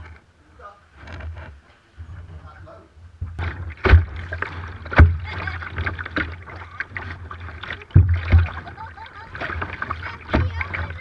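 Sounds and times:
water washing against hull: 0:03.2 - 0:11.0
kayak paddles splashing: 0:03.4 - 0:11.0.

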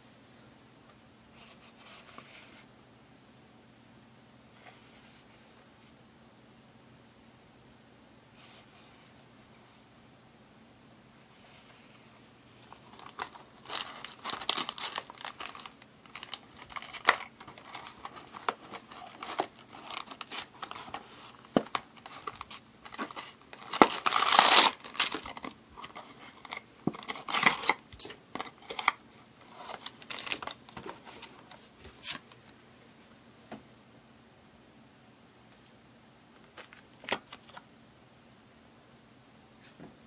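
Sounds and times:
paper and plastic crinkling: 0:12.6 - 0:32.4, 0:36.4 - 0:37.6
cardboard box being opened: 0:13.0 - 0:27.8.

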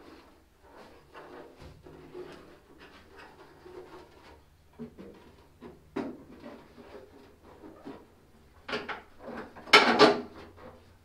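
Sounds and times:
knocks and clunks of handling: 0:01.5 - 0:06.7, 0:07.5 - 0:10.8.

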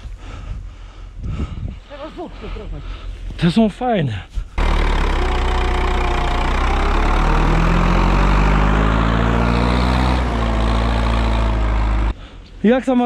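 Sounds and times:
tractor diesel engine running: 0:04.6 - 0:12.2.

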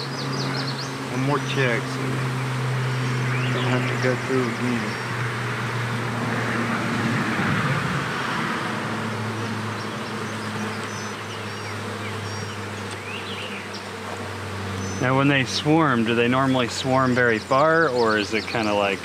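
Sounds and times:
bees humming: 0:00.0 - 0:19.0
rushing noise: 0:05.0 - 0:09.7.

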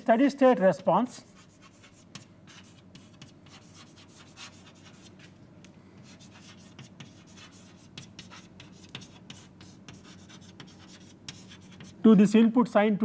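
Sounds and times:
faint steady hum: 0:00.0 - 0:13.0
chalk scratching on blackboard: 0:00.4 - 0:05.3, 0:06.0 - 0:12.1.

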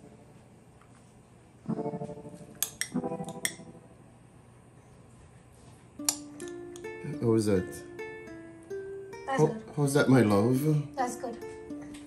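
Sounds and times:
strummed string chords: 0:06.0 - 0:12.0.

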